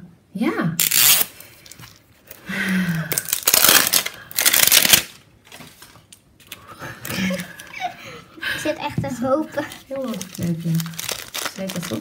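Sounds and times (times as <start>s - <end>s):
plastic wrapping crinkling: 3.0s - 7.8s, 9.6s - 12.0s.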